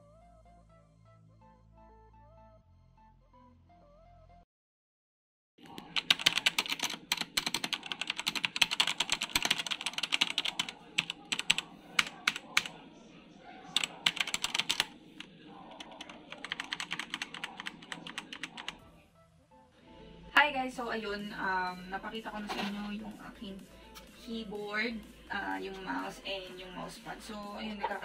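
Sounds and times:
fast typing on mechanical keyboard: 0:05.7 - 0:12.7, 0:13.8 - 0:14.9, 0:15.8 - 0:18.8.

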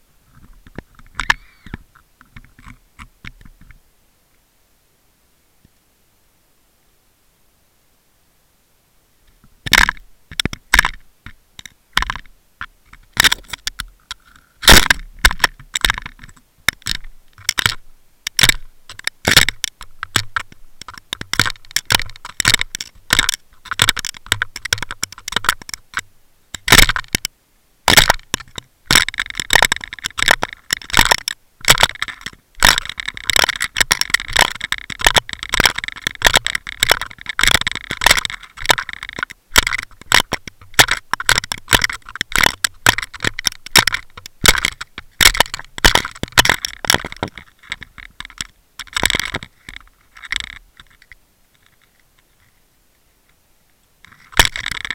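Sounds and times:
underwater clicking and crackling: 0:00.3 - 0:03.8, 0:09.7 - 0:27.3, 0:27.9 - 0:52.5, 0:54.0 - 0:54.9.

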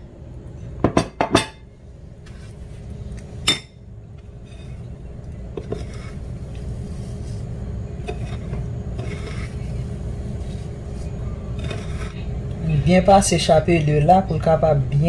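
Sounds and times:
rustling in breadcrumbs: 0:05.8 - 0:12.2.

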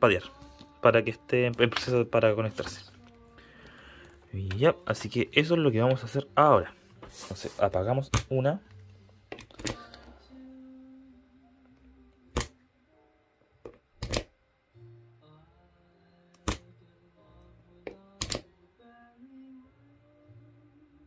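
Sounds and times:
sharp switch clicks: 0:16.4 - 0:16.7, 0:18.2 - 0:18.4.

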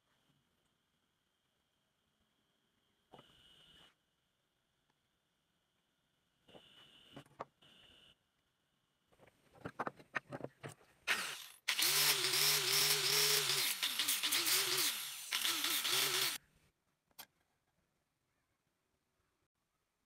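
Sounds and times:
angle grinder sanding wood: 0:11.1 - 0:16.4.

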